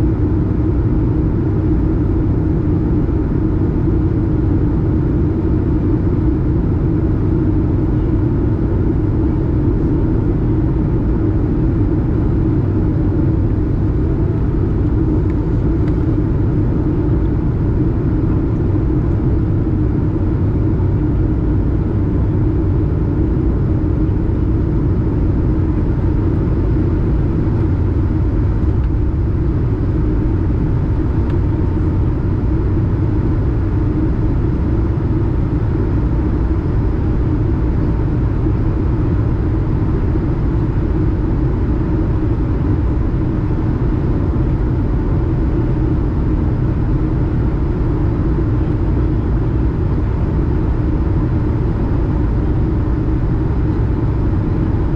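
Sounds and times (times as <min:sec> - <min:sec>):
faint steady hum: 0:00.0 - 0:54.9
jet engine rumble: 0:00.0 - 0:54.9.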